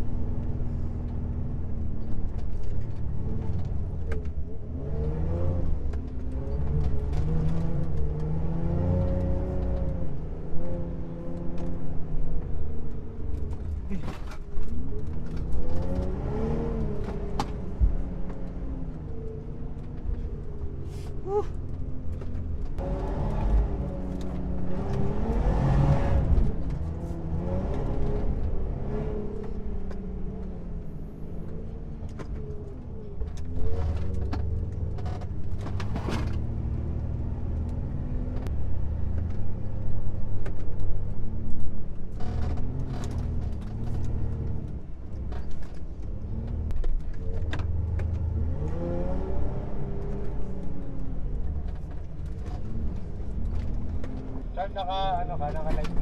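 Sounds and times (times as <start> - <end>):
car engine revving: 13.3 - 21.4, 22.1 - 56.0.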